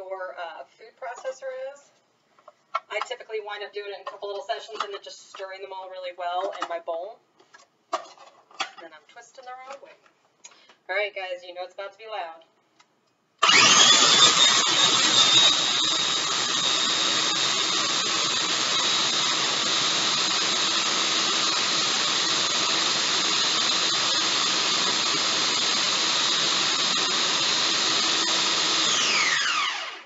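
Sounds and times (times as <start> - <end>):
food processor motor whine: 13.4 - 30.0.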